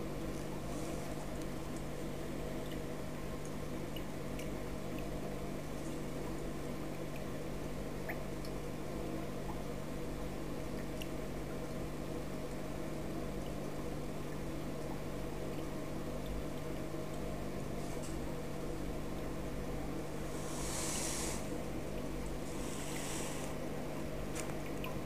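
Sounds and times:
faint trickling water: 0.0 - 25.0
water filter humming: 0.0 - 25.0.

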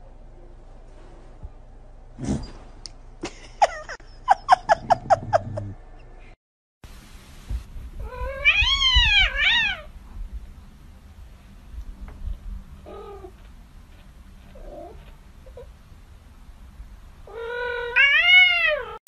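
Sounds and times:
cats meowing: 8.0 - 9.9, 17.3 - 19.0.

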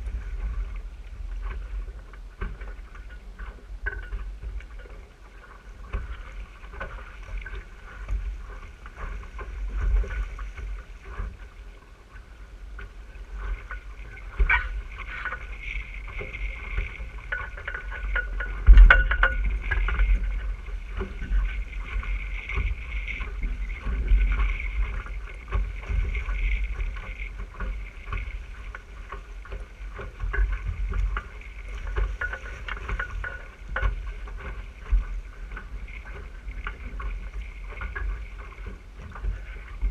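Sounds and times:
water rushing along hull: 0.0 - 39.9
wind buffeting microphone: 12.7 - 39.9.

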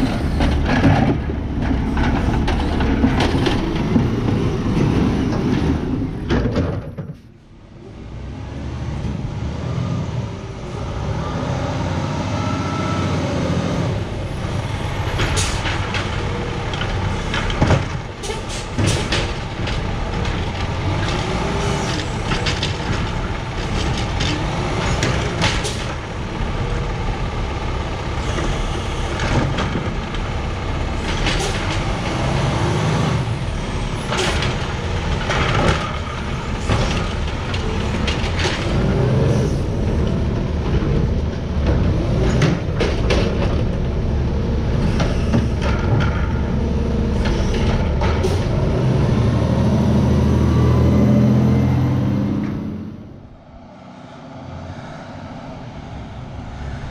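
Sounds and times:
hydraulic arm knocks and clatter: 0.0 - 7.3, 15.0 - 26.2, 31.0 - 32.2, 33.9 - 39.2, 39.8 - 44.0, 44.7 - 46.6, 47.2 - 48.7
garbage truck engine revving: 8.0 - 54.7.

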